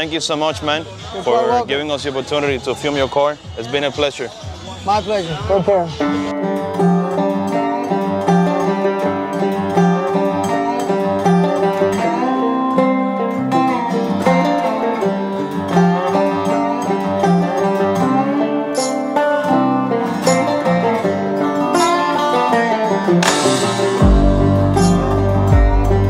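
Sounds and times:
plucked string background music: 5.6s - 26.0s.

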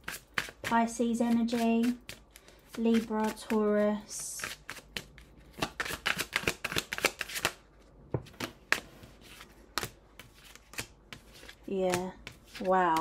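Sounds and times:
cards being shuffled: 4.4s - 7.6s, 8.2s - 13.0s.

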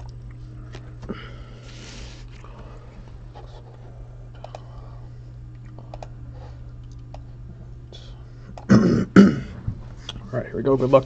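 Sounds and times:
person coughing loudly: 8.7s - 9.6s.

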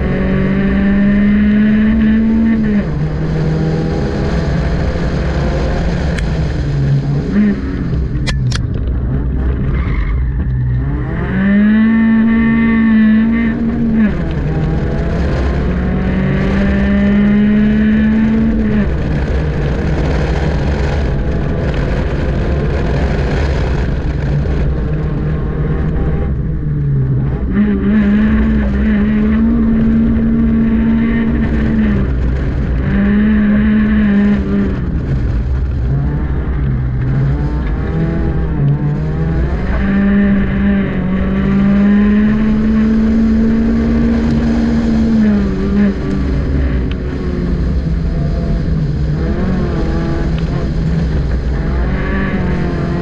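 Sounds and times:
car engine revving: 0.0s - 53.0s.

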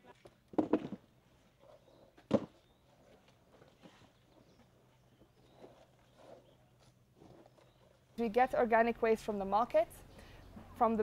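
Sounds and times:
faint steady hum: 0.0s - 11.0s
plastic crates knocking: 0.5s - 1.0s, 2.3s - 2.6s.

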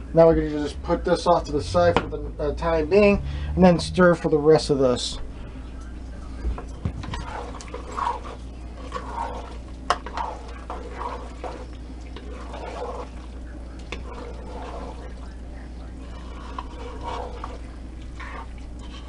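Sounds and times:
wet squelching and scraping: 6.7s - 19.0s.

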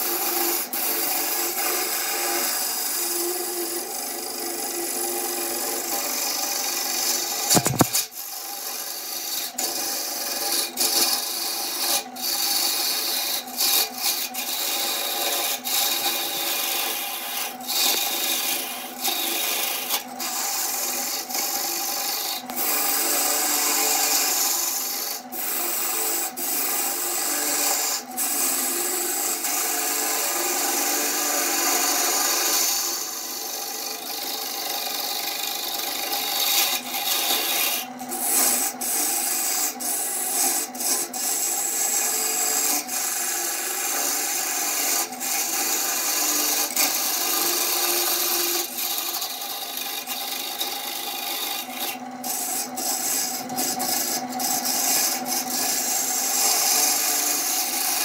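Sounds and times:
lathe tool scraping wood: 0.0s - 58.0s
lathe motor humming: 33.5s - 42.0s, 42.6s - 58.0s.

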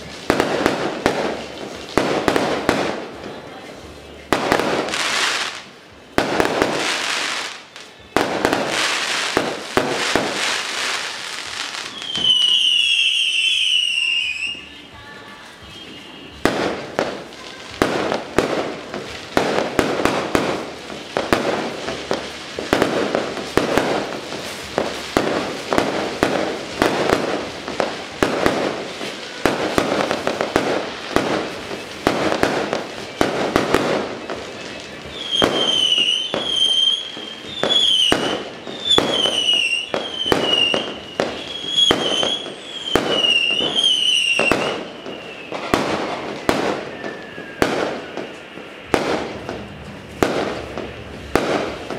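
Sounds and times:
firecrackers banging and crackling: 0.0s - 51.9s
high falling whistle: 46.8s - 48.4s.

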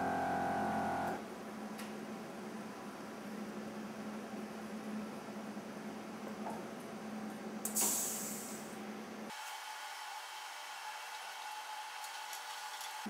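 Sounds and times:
faint steady whine: 0.0s - 1.2s
low machine hum: 0.0s - 1.2s
short loud hiss: 7.8s - 8.7s.

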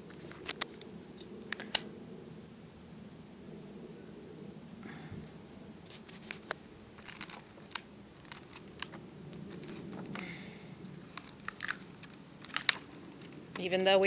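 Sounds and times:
crackles and sharp pops: 0.0s - 2.0s, 5.8s - 13.7s.

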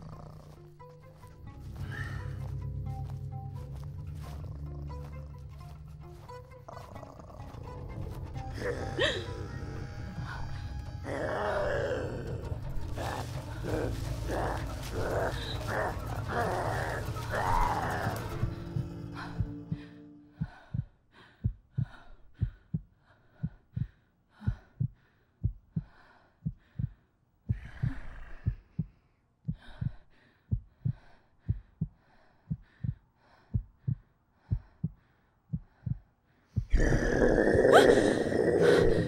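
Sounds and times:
heartbeat thumps: 12.3s - 36.9s.

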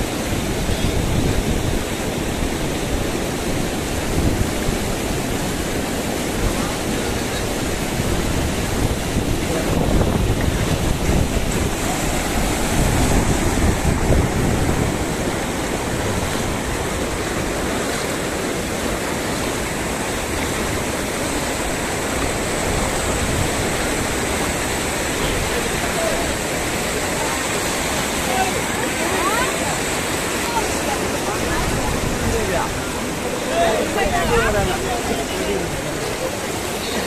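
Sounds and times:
wind buffeting microphone: 0.0s - 36.6s
floodwater rushing: 0.0s - 37.0s.

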